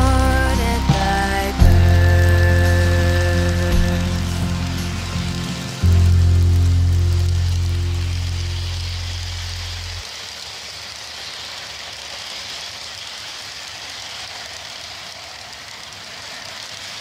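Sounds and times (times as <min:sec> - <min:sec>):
background music: 0:00.0 - 0:09.1
model train wheels rolling on track: 0:00.0 - 0:17.0.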